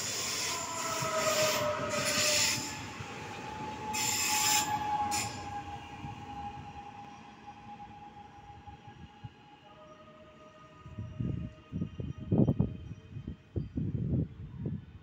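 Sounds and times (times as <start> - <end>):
electric train whine: 0.0 - 13.9.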